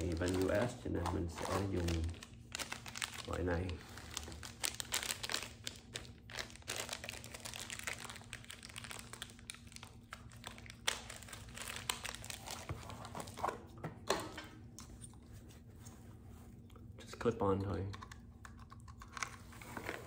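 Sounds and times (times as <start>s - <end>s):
plastic bag crinkling: 0.0s - 13.4s.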